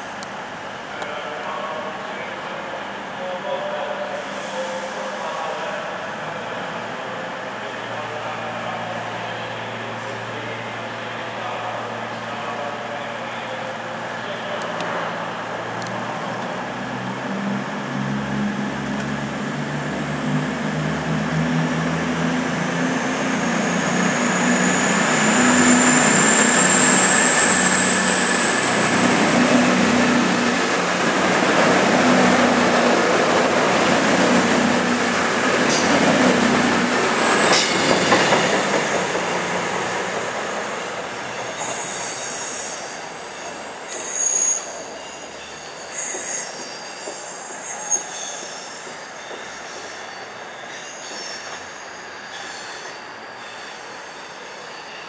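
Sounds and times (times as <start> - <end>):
diesel train engines: 0.0 - 55.0
short high squeals: 24.2 - 30.8, 38.9 - 55.0.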